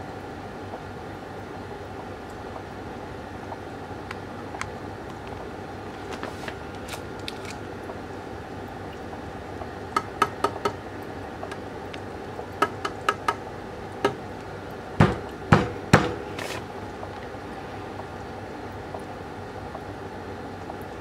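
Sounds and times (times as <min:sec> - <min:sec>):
steady background hum: 0:00.0 - 0:21.0
fingertip tapping on glass: 0:12.6 - 0:13.4.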